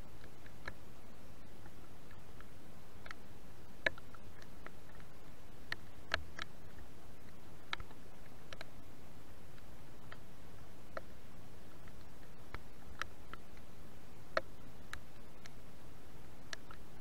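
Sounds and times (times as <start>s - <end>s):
steady hiss: 0.0s - 17.0s
light ticks and taps: 3.8s - 8.8s, 10.9s - 13.7s, 14.3s - 15.6s, 16.4s - 17.0s.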